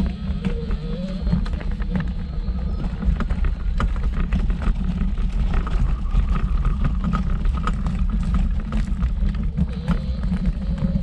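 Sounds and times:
wheels rolling over gravel: 0.0s - 11.0s.

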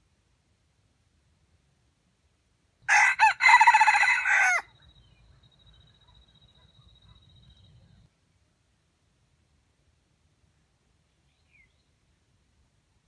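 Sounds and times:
rooster crowing: 2.9s - 4.7s.

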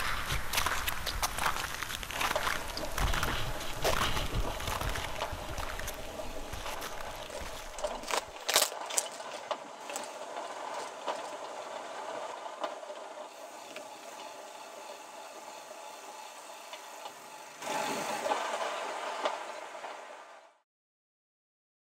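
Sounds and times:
loud rush of noise: 0.0s - 8.6s, 17.6s - 20.6s
steady mechanical drone: 0.0s - 20.6s.

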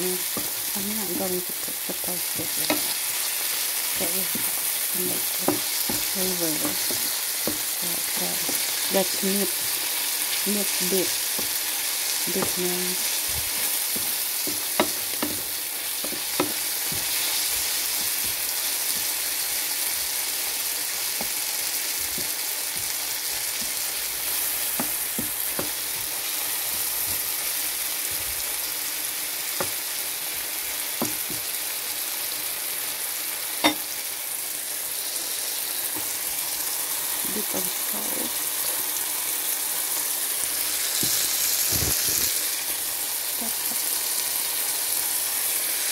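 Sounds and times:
food sizzling in a frying pan: 0.0s - 45.9s
spatula stirring food: 0.2s - 0.8s, 1.4s - 29.0s
spatula tapping against pan: 14.0s - 17.2s, 24.7s - 26.1s.

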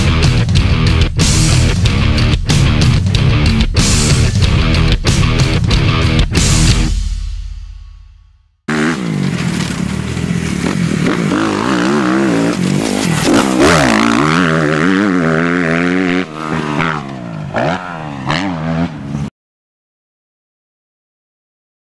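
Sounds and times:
dirt bike engine revving: 8.7s - 19.3s.

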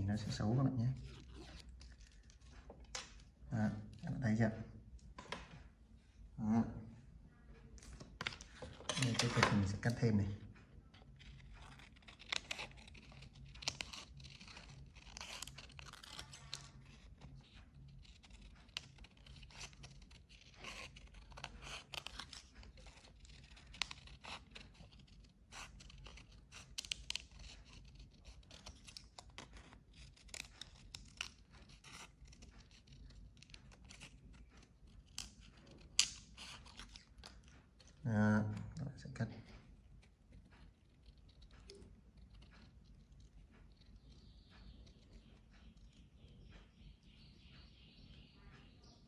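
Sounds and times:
paper rustling and crinkling: 11.0s - 38.0s
scissors snipping paper: 11.0s - 39.2s.

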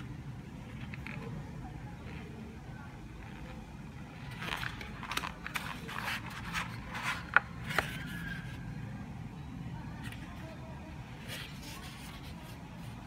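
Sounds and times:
paper pulp tray scraping and rustling: 4.2s - 8.6s.

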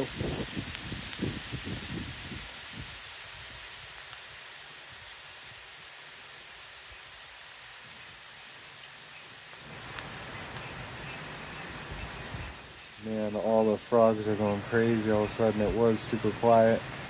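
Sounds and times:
outdoor ambience hiss: 0.0s - 17.0s.

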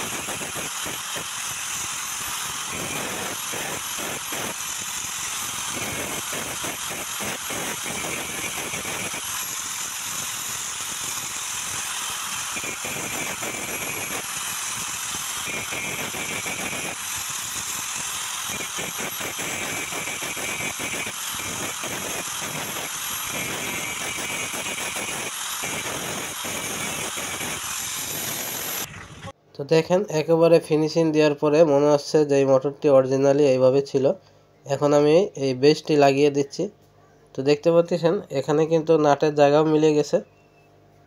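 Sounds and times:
small power tool running: 0.0s - 29.4s.

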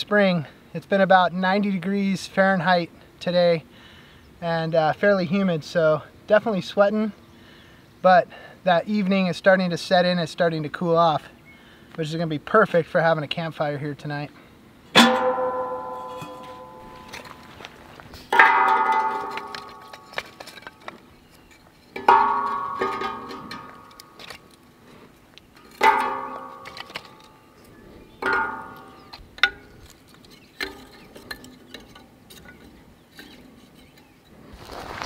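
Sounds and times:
sticks knocking on ringing steel: 15.0s - 17.5s, 18.3s - 20.4s, 22.0s - 24.2s, 25.8s - 27.2s, 28.2s - 29.6s.

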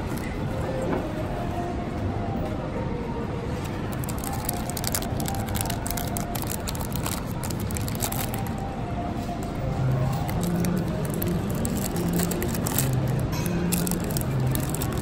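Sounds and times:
plastic bags crinkling: 3.8s - 8.6s, 10.0s - 15.0s.

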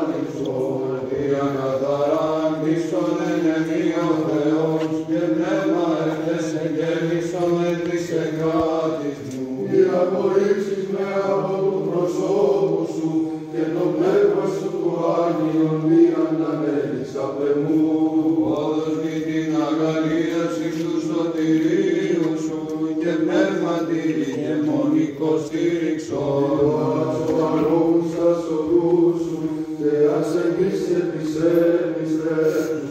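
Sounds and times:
slow sung chant melody: 0.0s - 32.9s.

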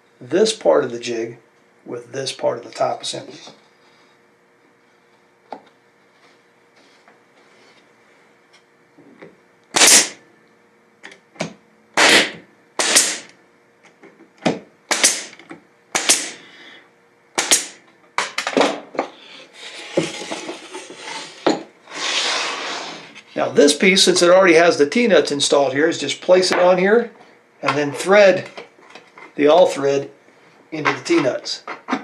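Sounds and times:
nail gun shots: 9.8s - 10.2s, 12.0s - 13.3s, 14.9s - 16.4s, 17.4s - 17.8s
wooden pieces scraping and rustling: 19.5s - 21.5s.

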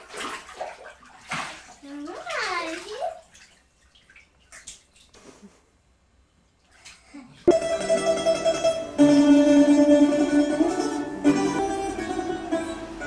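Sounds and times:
plucked string music: 7.5s - 13.0s.

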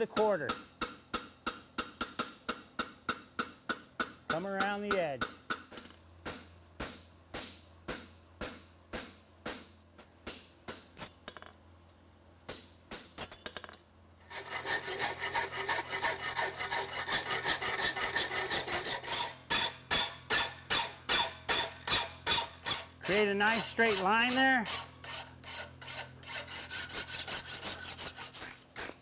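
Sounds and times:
metal file rasping: 14.2s - 29.0s
hammer blows on steel horseshoe: 14.3s - 27.0s.

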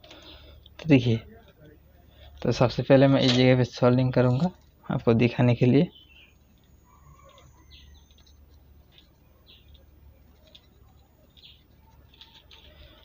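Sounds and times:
low steady hum: 0.0s - 13.0s
faint bird chirping: 4.1s - 13.0s.

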